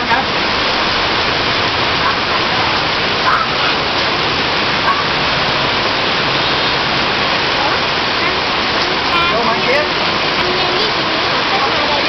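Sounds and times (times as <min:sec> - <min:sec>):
heavy rain pouring: 0:00.0 - 0:12.0
faint voices: 0:07.5 - 0:12.0.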